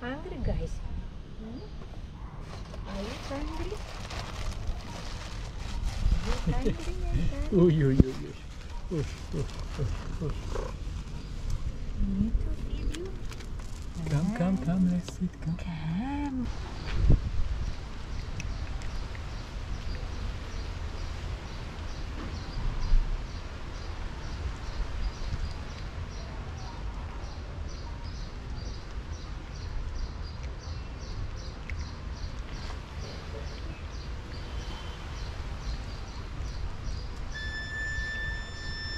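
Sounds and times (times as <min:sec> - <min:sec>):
steady low rumble: 0:00.0 - 0:27.1
faint high chirping: 0:37.2 - 0:38.9.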